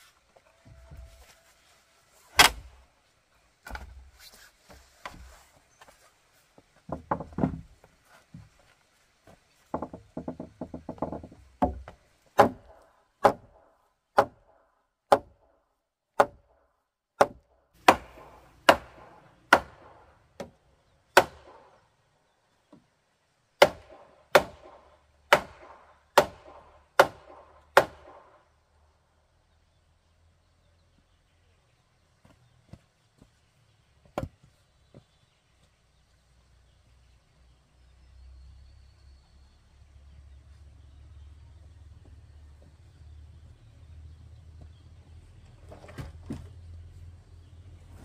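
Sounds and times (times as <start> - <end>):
wooden poles clattering: 6.6 - 8.6, 9.3 - 12.7
wooden club pounding log: 6.9 - 7.7, 9.6 - 13.6, 14.2 - 14.5, 15.1 - 15.4, 16.2 - 16.5, 17.2 - 20.6, 23.6 - 28.2, 34.0 - 35.1.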